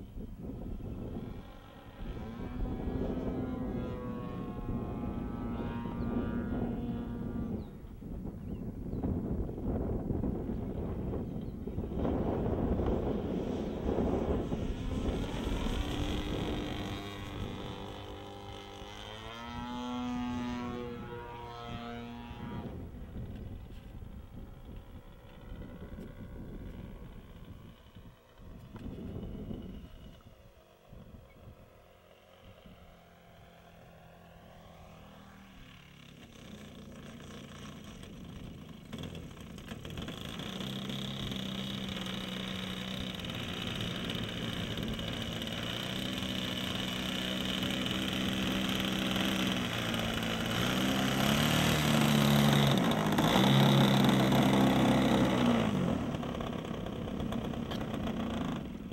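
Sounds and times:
model aeroplane engine: 0:00.0 - 0:58.9.

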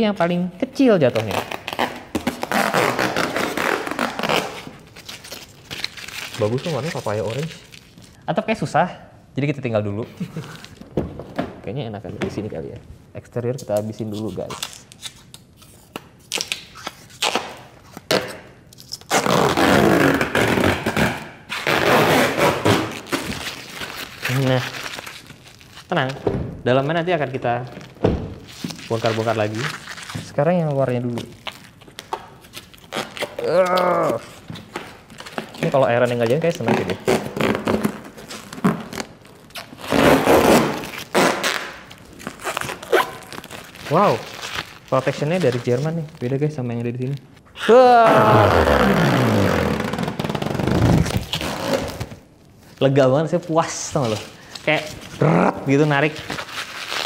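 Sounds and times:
protective film ripping off: 0:01.2 - 0:08.2, 0:14.4 - 0:26.0, 0:27.7 - 0:46.3, 0:56.0 - 0:57.0.

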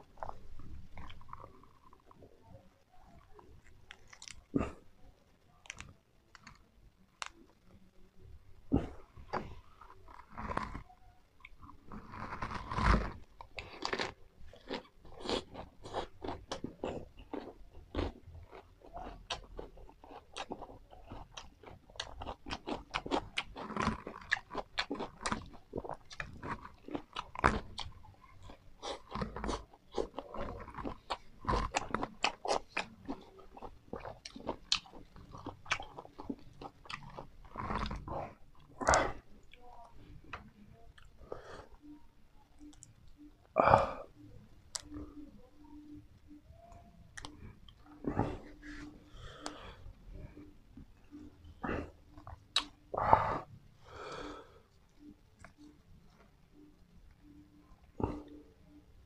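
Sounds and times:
chewing and crunching crisp food: 0:00.0 - 0:59.0.

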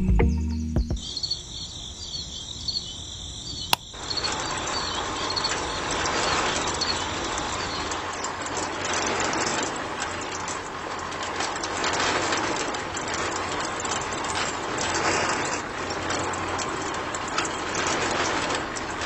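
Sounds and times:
music: 0:00.0 - 0:01.0
faint high chirping: 0:01.0 - 0:08.7.

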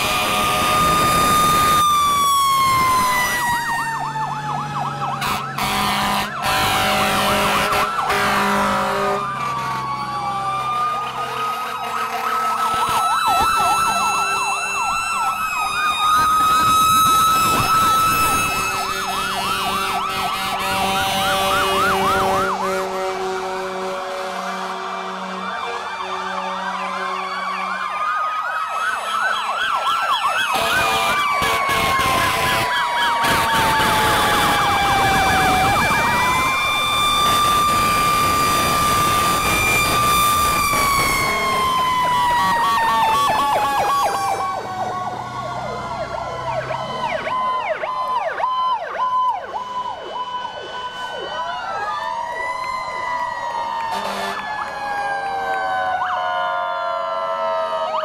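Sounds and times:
sirens wailing and yelping: 0:00.0 - 0:58.0.

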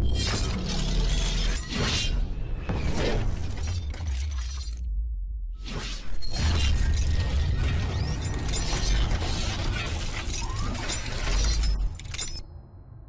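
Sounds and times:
deep bass rumble: 0:04.8 - 0:05.6
metallic clanking and ratcheting: 0:06.8 - 0:12.4.

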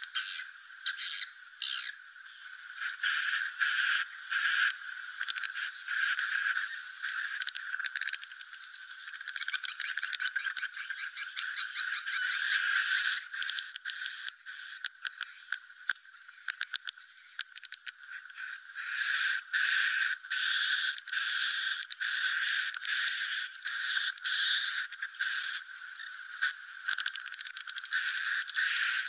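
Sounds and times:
high whistling chirps: 0:00.0 - 0:09.0, 0:09.6 - 0:15.4, 0:18.0 - 0:29.0
swiftlet twittering chirps: 0:00.0 - 0:15.5, 0:16.1 - 0:29.0
rapid dry clicking: 0:05.0 - 0:18.1, 0:26.0 - 0:29.0.

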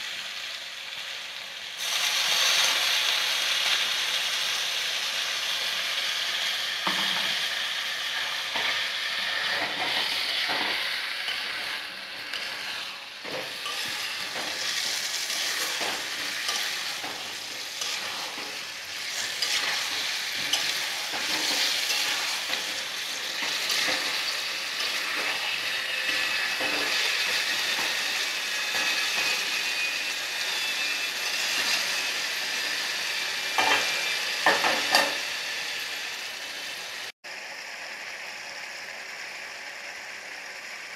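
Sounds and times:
curry sizzling in a wok: 0:00.0 - 0:40.9
metal spatula scraping a pan: 0:08.1 - 0:32.9, 0:33.5 - 0:35.2.

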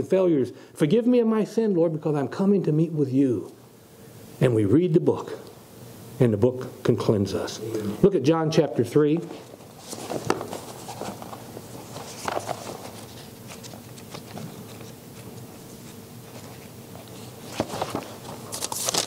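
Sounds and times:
faint steady hum: 0:00.0 - 0:19.0
paper pages rustling: 0:09.1 - 0:19.0.

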